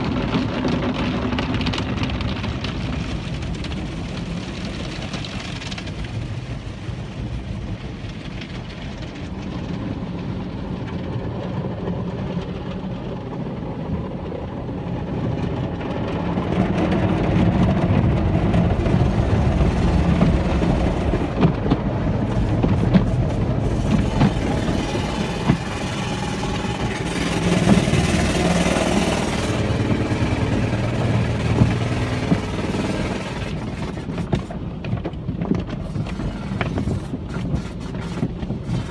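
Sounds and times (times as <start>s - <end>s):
car wash pump rumble: 0.0s - 38.9s
water spraying on windshield: 0.0s - 38.9s
rotating brushes on windshield: 18.8s - 38.9s.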